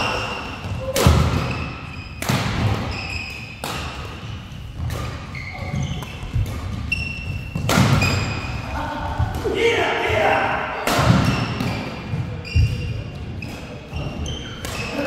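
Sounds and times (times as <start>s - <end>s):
court shoes squeaking on floor: 0.0s - 9.3s, 11.1s - 15.0s
racket striking shuttlecock: 3.6s - 4.2s, 6.0s - 8.4s.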